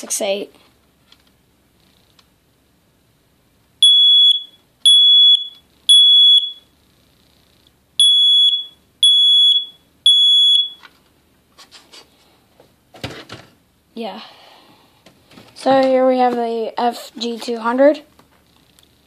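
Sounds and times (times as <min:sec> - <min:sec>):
smoke alarm high-pitched beeps: 0:03.8 - 0:06.7, 0:08.0 - 0:10.8.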